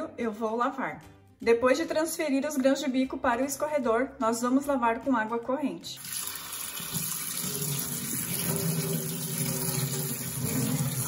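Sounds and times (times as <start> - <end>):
tap water running onto chickpeas: 6.0 - 11.0.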